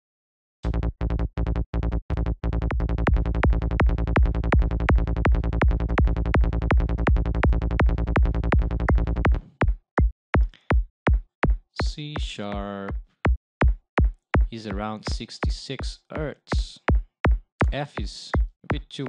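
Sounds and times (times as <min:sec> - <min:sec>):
synth bass: 0:00.6 - 0:09.5
psytrance kick drum: 0:02.4 - 0:19.0.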